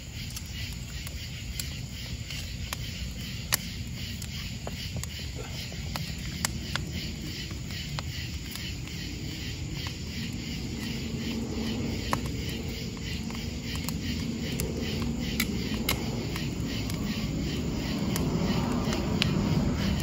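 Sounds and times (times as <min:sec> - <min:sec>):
night insects chirping: 0:00.0 - 0:20.0
wood fire crackling: 0:00.0 - 0:20.0
low rumble: 0:05.3 - 0:20.0.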